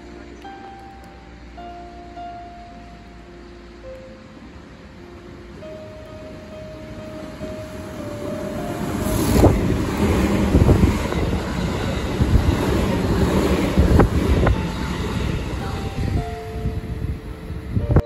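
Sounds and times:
train wheels rumbling on rails: 0:04.4 - 0:18.0.

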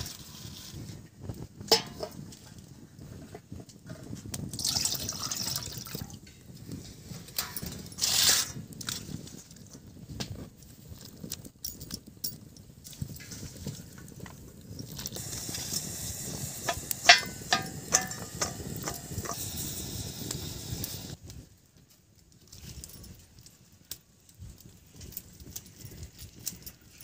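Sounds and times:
metal bowl ringing: 0:17.0 - 0:19.0.

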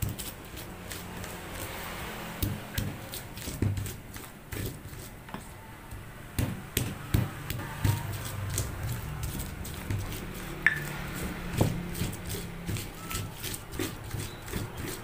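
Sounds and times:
stone pestle knocking in mortar: 0:02.4 - 0:05.1, 0:05.9 - 0:15.0.

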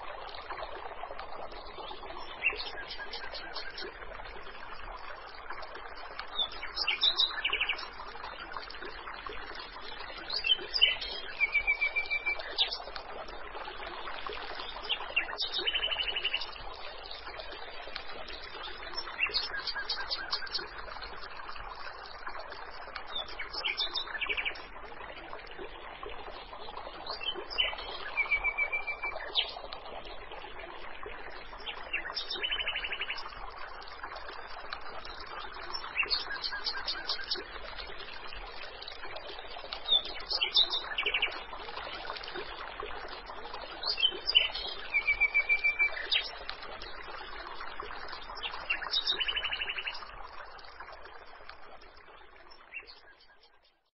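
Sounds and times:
trickle of running water: 0:00.0 - 0:53.9
small birds chirping: 0:34.2 - 0:42.5, 0:43.6 - 0:50.2.

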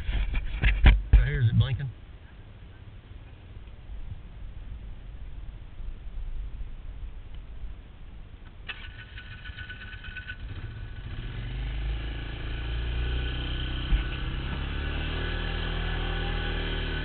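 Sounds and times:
quad bike engine running: 0:08.7 - 0:17.0.

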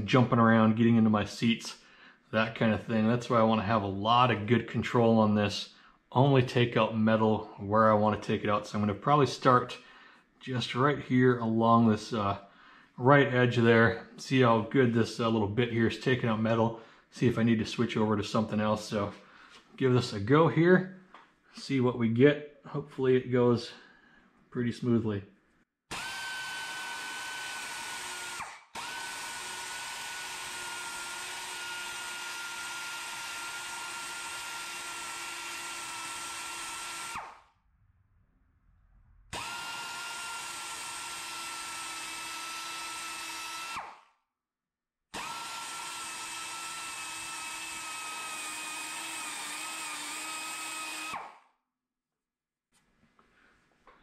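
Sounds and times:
die grinder whining cutting metal: 0:25.9 - 0:37.3, 0:39.4 - 0:43.9, 0:45.2 - 0:51.2.

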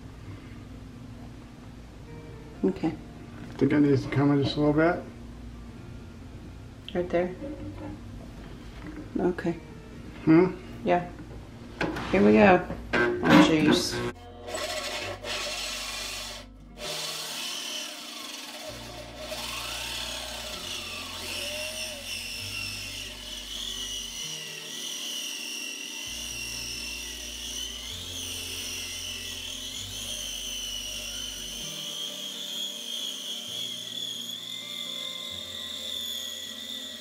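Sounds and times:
power drill hole saw grinding: 0:13.9 - 0:37.0.

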